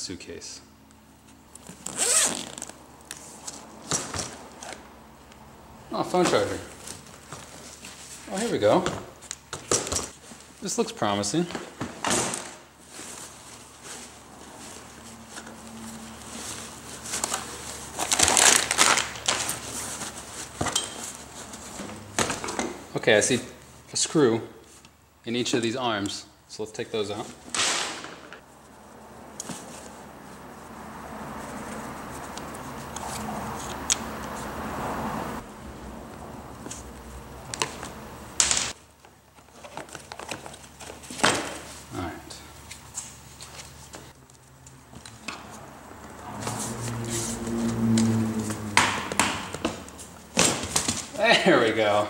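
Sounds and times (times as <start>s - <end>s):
fabric lining rustling: 1.4s - 3.8s, 12.6s - 22.2s
plastic bag crinkling: 16.3s - 20.5s.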